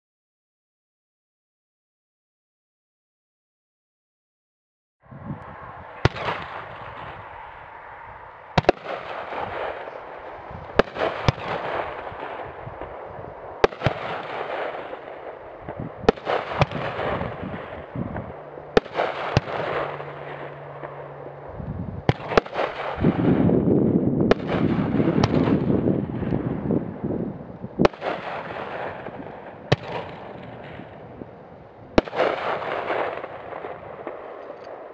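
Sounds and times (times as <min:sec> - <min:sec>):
firework shells banging: 0:08.6 - 0:21.4.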